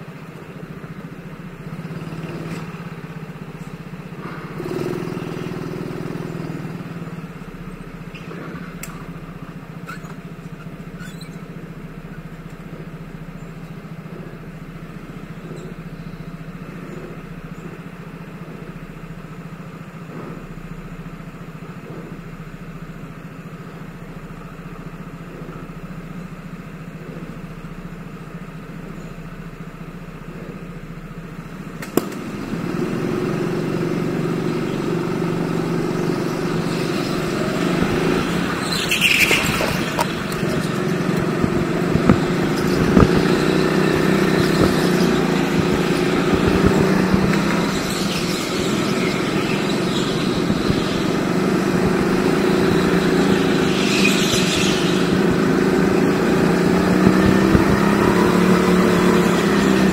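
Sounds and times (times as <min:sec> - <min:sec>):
kart engine idling: 0:00.0 - 0:59.9.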